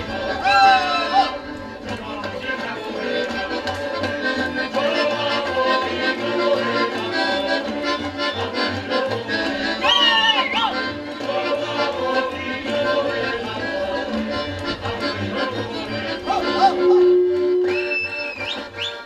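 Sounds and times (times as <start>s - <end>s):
folk band with accordion: 0.0s - 19.0s
high sliding note: 16.4s - 18.4s
bass pulse: 16.5s - 18.3s.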